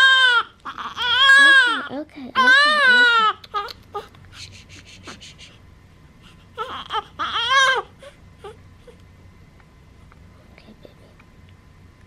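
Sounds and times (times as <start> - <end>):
newborn baby crying: 0.0 - 4.2, 6.5 - 9.0.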